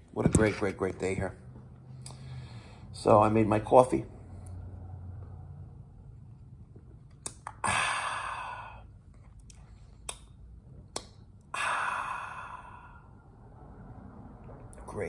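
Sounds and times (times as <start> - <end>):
long sighs of breath: 7.6 - 9.0, 11.5 - 13.4.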